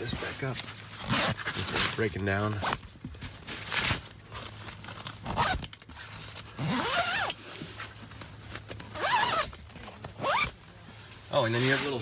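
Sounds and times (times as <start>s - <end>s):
tent zipper being zipped: 0.0s - 2.8s, 3.5s - 7.6s, 8.9s - 9.6s, 10.2s - 10.6s, 11.4s - 12.0s
tent fabric rustling: 0.0s - 12.0s.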